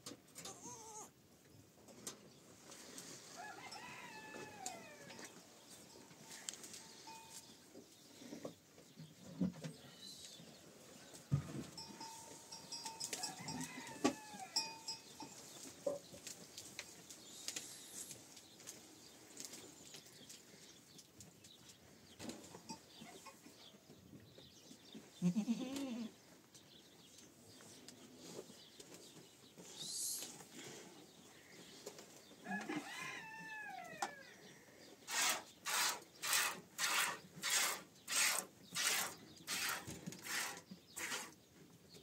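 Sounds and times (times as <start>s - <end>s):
goat bleating: 0.4s - 1.2s, 25.2s - 26.2s
knocks and rustling: 11.2s - 12.2s.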